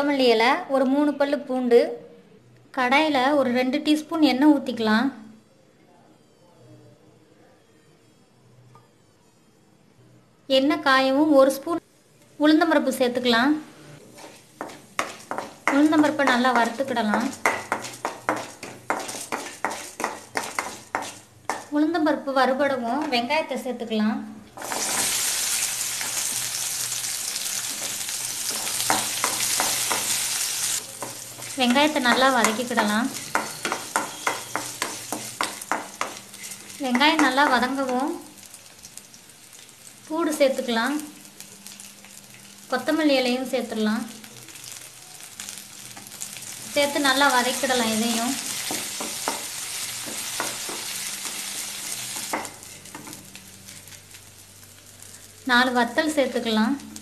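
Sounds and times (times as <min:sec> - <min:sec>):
onions sizzling in hot oil: 0:14.0 - 0:21.8, 0:24.6 - 0:57.0
wooden spatula knocking pan: 0:14.6 - 0:21.7, 0:28.5 - 0:30.2, 0:31.0 - 0:36.3, 0:48.5 - 0:51.4.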